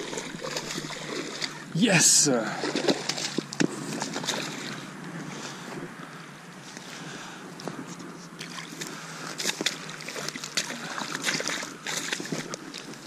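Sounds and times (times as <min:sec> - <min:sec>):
fish splashing in water: 0:00.0 - 0:01.7, 0:02.4 - 0:05.6, 0:08.4 - 0:13.0.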